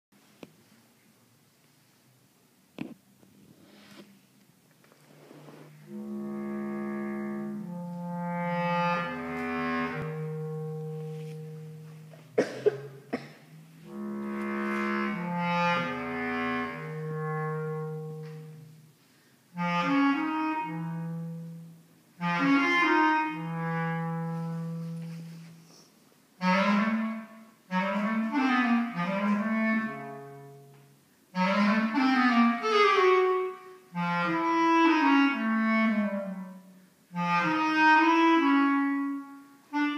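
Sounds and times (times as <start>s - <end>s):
bass clarinet playing: 5.6s - 39.9s.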